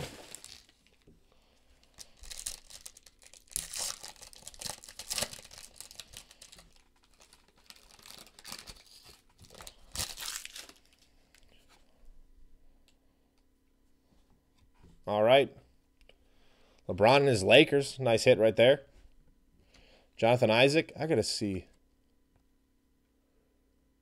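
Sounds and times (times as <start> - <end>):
foil wrapper crinkling: 0.0 - 1.1, 1.8 - 11.5.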